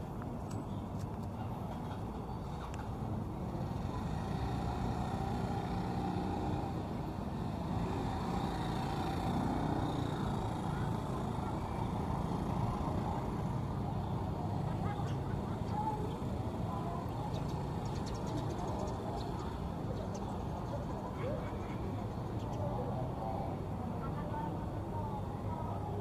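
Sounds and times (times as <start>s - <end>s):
faint distant voices: 0.0s - 26.0s
low traffic rumble: 0.0s - 26.0s.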